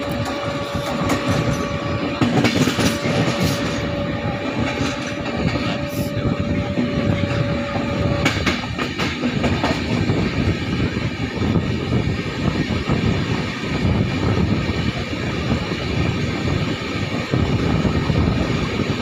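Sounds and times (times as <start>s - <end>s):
wheels clacking over rail joints: 0.0s - 5.9s, 7.2s - 10.0s
train wheels rumbling on rail: 0.0s - 19.0s.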